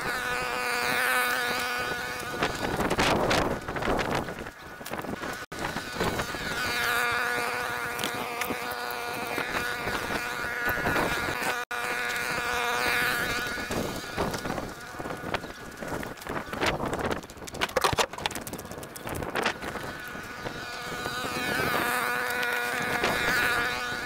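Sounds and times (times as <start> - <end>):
small engine buzzing: 0.0 - 24.0
dry sticks crackling: 0.9 - 5.5, 7.0 - 9.8, 13.2 - 23.4.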